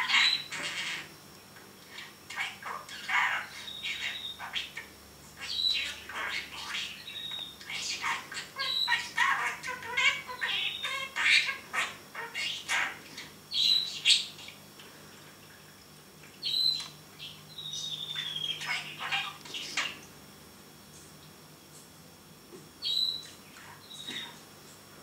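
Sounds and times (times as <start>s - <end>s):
budgerigar chattering and warbling: 0.0s - 1.1s, 2.3s - 14.5s, 17.6s - 20.0s.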